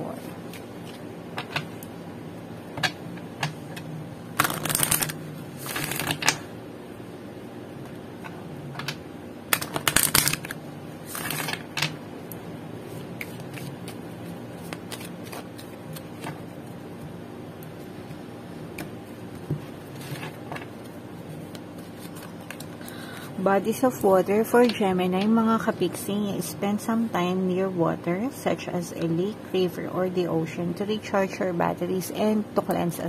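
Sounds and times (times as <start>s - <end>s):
low steady hum: 0.0s - 33.0s
cards being shuffled: 4.4s - 6.4s, 8.8s - 11.9s, 12.9s - 17.1s, 18.8s - 22.8s.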